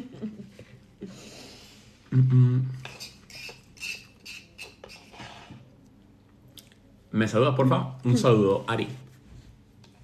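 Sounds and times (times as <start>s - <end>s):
person humming: 2.1s - 2.8s.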